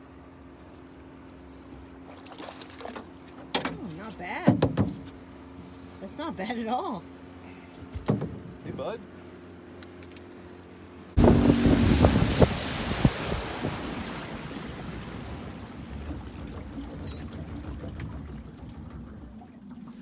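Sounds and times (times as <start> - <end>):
knocks: 7.9 - 8.6
wind buffeting microphone: 11.2 - 17.2
water washing against boat: 11.2 - 20.0.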